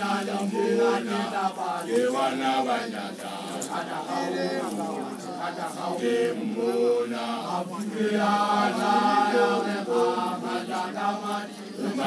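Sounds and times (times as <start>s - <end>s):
men chanting: 0.0s - 12.0s.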